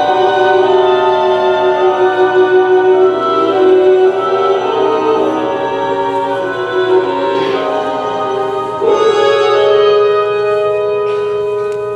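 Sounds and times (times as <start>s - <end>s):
slow music of held notes: 0.0s - 11.9s.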